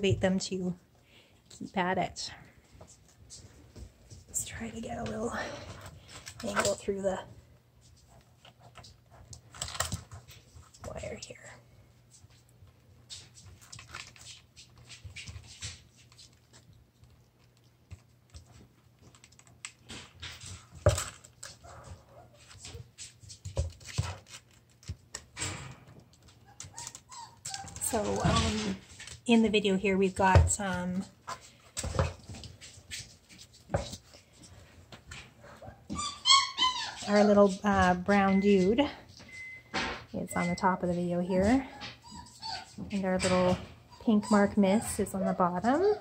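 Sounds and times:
puppy whining: 0:26.3 - 0:28.4, 0:35.4 - 0:37.6, 0:41.2 - 0:42.9, 0:43.8 - 0:46.0.

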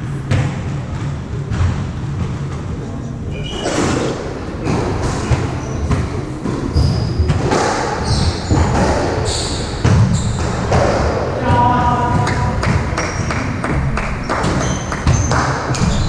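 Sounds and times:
shoes squeaking on floor: 0:03.2 - 0:10.7, 0:13.0 - 0:16.0.

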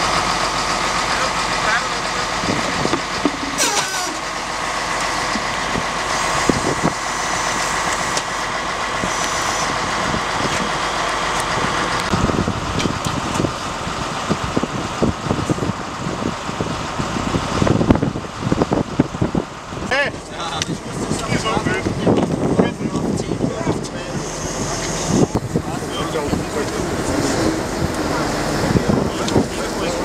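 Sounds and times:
truck engine idling: 0:00.0 - 0:30.0
high-pitched hum: 0:20.2 - 0:30.0.

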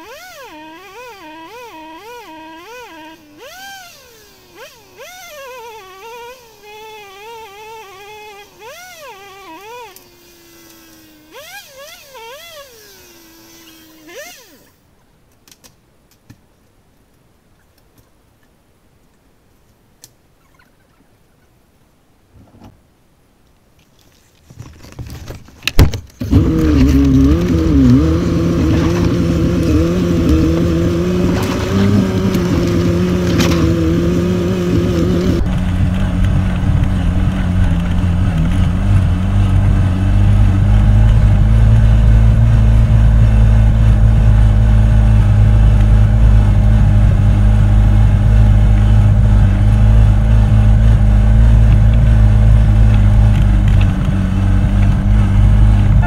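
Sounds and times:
engine revving in short blips: 0:26.2 - 0:56.0
engine running loud and steady: 0:26.2 - 0:56.0.

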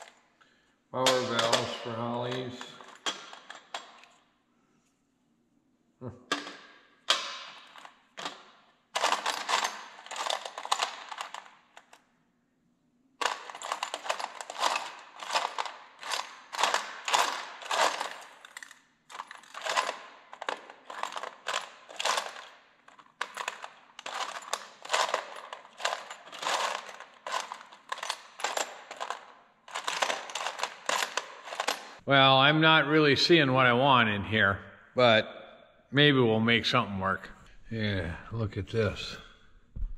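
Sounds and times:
small metal parts clinking: 0:01.0 - 0:04.2, 0:06.3 - 0:12.0, 0:13.2 - 0:32.0.

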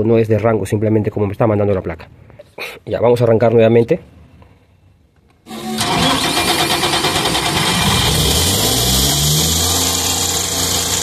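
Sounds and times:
diesel engine starting and running: 0:05.5 - 0:11.0.

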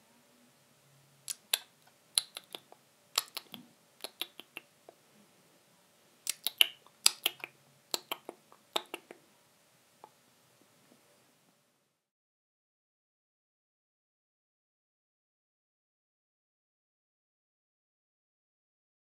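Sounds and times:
bat echolocation clicks: 0:01.3 - 0:04.6, 0:06.3 - 0:09.2.

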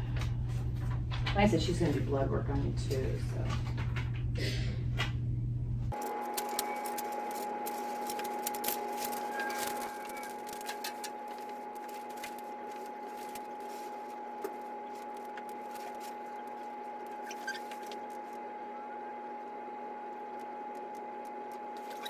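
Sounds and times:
high electrical hum: 0:00.0 - 0:22.0
lower hum: 0:02.6 - 0:22.0
faint clicks and rustles: 0:05.9 - 0:18.4.

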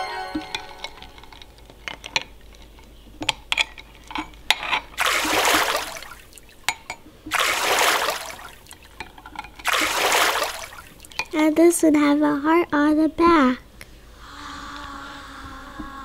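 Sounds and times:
spoon clinking against ice: 0:00.3 - 0:04.8
water sloshing in bowl: 0:01.2 - 0:11.6.

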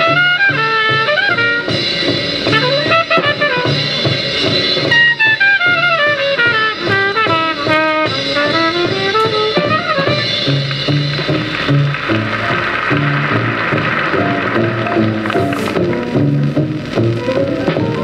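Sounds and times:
alto saxophone: 0:00.0 - 0:04.2, 0:04.8 - 0:11.2, 0:17.1 - 0:18.0
bass: 0:00.0 - 0:18.0
drums: 0:00.0 - 0:18.0
piano: 0:00.0 - 0:18.0
trumpet: 0:00.0 - 0:18.0.

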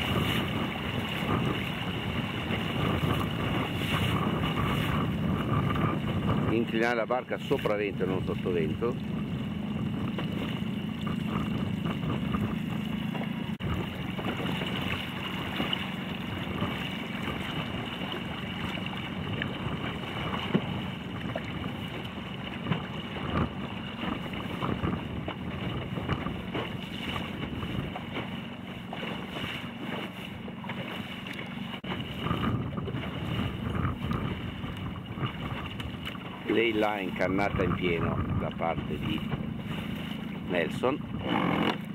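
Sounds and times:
water lapping against boat hull: 0:00.0 - 0:41.9
wind buffeting microphone: 0:00.0 - 0:41.9.

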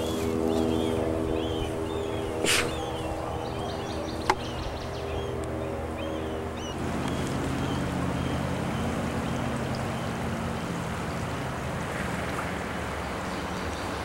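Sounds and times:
creek flowing: 0:06.2 - 0:14.0.

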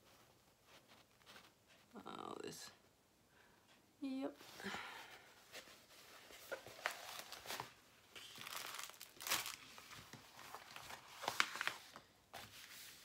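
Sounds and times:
plastic sheet crinkling: 0:06.3 - 0:13.0.

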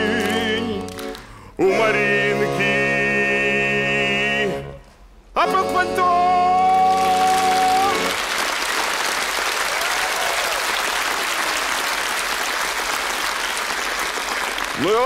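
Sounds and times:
accordion chord: 0:00.0 - 0:08.5
audience applauding: 0:06.7 - 0:15.0.

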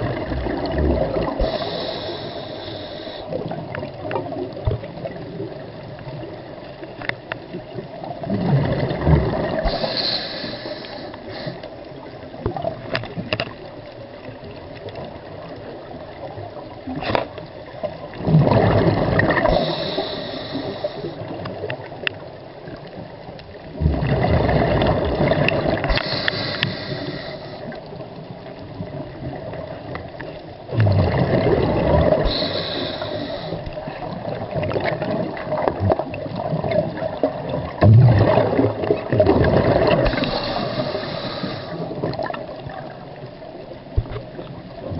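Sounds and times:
underwater water noise: 0:00.0 - 0:44.9
scuba regulator breathing: 0:01.3 - 0:03.4, 0:09.5 - 0:11.9, 0:19.3 - 0:21.4, 0:25.7 - 0:27.8, 0:32.0 - 0:34.0, 0:39.9 - 0:42.1
faint clicks: 0:06.6 - 0:07.7, 0:09.7 - 0:15.7, 0:19.2 - 0:23.7, 0:25.4 - 0:28.8, 0:39.8 - 0:44.8.

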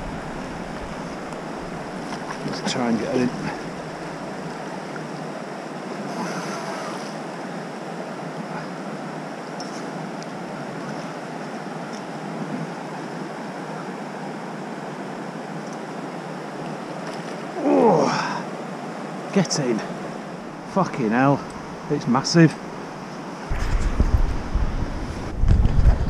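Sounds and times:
river water rushing: 0:00.0 - 0:25.2
wind: 0:00.0 - 0:26.0.

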